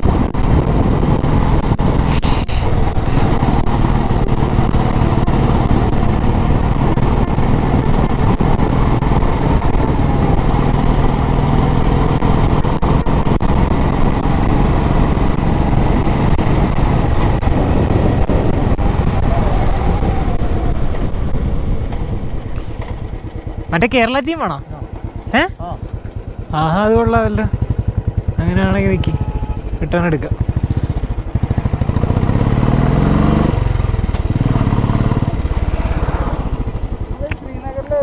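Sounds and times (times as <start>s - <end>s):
wind rushing: 0.0s - 23.2s, 30.4s - 37.2s
motorcycle engine running: 0.0s - 38.0s.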